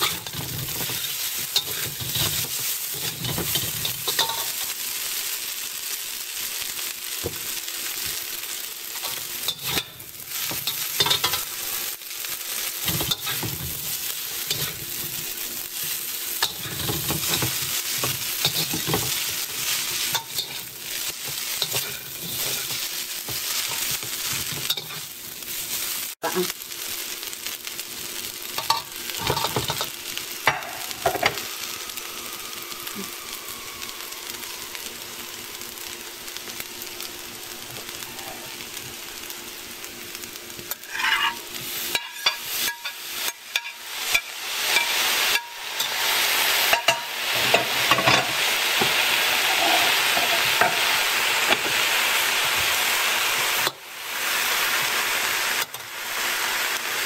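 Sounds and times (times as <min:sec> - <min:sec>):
metal spatulas scraping a wok: 0:00.0 - 0:04.7, 0:09.0 - 0:11.9, 0:12.8 - 0:15.2, 0:15.8 - 0:25.1, 0:40.7 - 0:51.0
noodles sizzling in a wok: 0:00.0 - 0:57.0.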